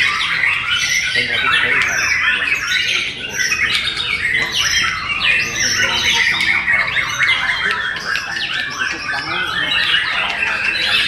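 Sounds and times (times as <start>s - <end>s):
songbirds whistling: 0.0s - 11.0s.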